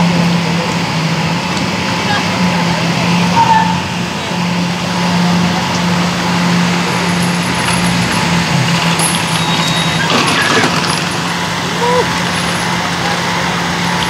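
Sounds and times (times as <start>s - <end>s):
car engine drone: 0.0s - 14.0s
personal watercraft idling: 0.0s - 14.0s.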